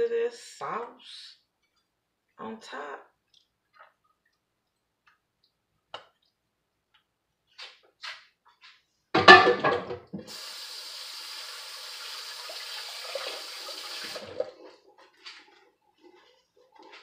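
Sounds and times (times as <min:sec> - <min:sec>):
dishware clattering in sink: 0:09.2 - 0:10.1
faucet running water: 0:10.2 - 0:14.9.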